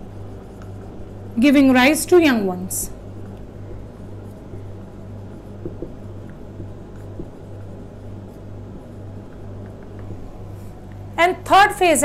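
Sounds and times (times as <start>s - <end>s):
low electrical hum: 0.0s - 12.0s
marker scratching on whiteboard: 3.7s - 9.9s.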